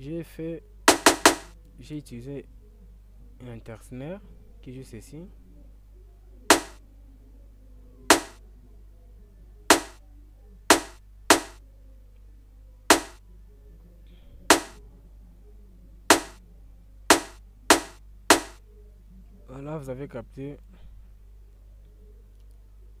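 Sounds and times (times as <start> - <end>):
snare drum hits: 0.9 - 1.5, 6.5 - 6.8, 8.1 - 8.4, 9.7 - 10.0, 10.7 - 11.6, 12.9 - 13.2, 14.5 - 14.8, 16.1 - 16.4, 17.1 - 18.6.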